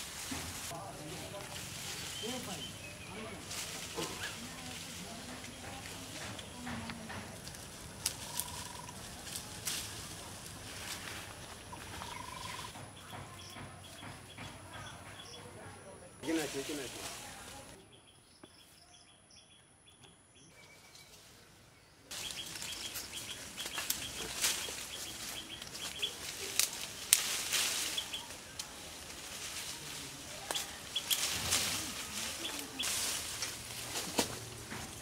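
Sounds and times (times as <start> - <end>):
leaves rustling: 0.0 - 12.9, 16.2 - 17.9, 20.5 - 35.0
twigs cracking: 2.8 - 12.6, 22.1 - 35.0
faint bird chirping: 11.4 - 16.2, 17.8 - 27.1.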